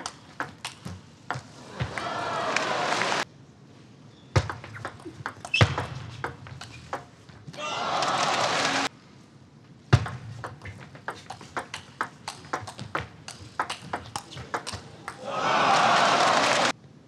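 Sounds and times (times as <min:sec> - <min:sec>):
table tennis ball clicks: 0:10.0 - 0:15.2.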